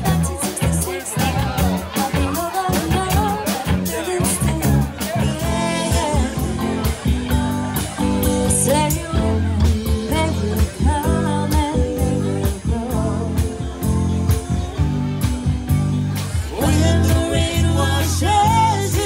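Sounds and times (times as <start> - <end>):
woman singing: 0.0 - 7.4, 8.2 - 15.5, 16.4 - 19.0
drum kit beat: 0.0 - 19.0
electric bass: 0.0 - 19.0
electric guitar: 0.0 - 19.0.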